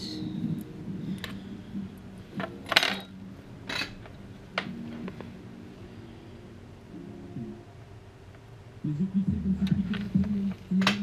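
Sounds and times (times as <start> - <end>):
metal tools clinking on wood: 2.4 - 3.1, 3.7 - 4.2.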